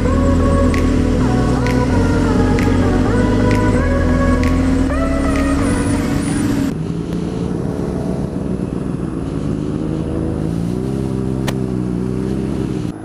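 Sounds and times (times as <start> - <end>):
motorcycle engine running at low revs: 0.0 - 13.0
sharp click: 0.6 - 5.9.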